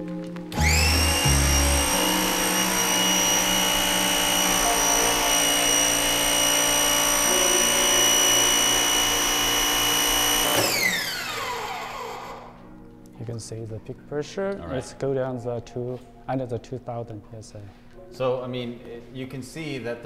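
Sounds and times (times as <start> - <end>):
motor winding down: 0.6 - 12.6
pressure washer high whine: 0.6 - 12.6.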